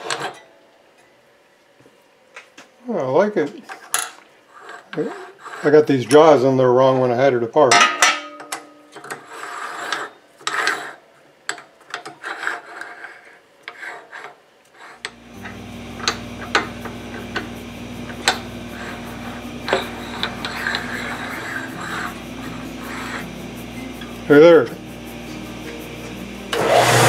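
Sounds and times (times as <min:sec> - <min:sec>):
metal-on-metal rasping: 0:04.5 - 0:07.1, 0:08.2 - 0:11.1, 0:11.9 - 0:25.4
lathe chuck jaws scraping and clicking: 0:09.0 - 0:17.5, 0:18.1 - 0:23.4
steady low hum: 0:15.0 - 0:27.0.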